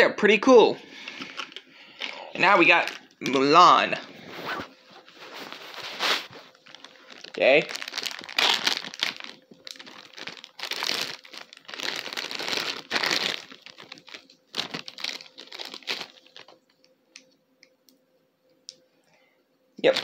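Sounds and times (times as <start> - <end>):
plastic bag crinkling: 1.0 - 3.6, 4.2 - 16.8, 19.8 - 20.0.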